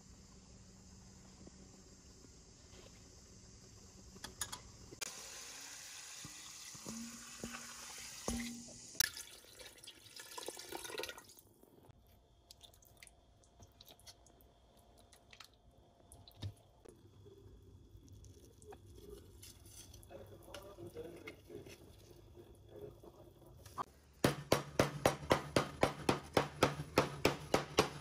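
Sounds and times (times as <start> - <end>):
water poured into plastic tub: 9.0 - 11.6.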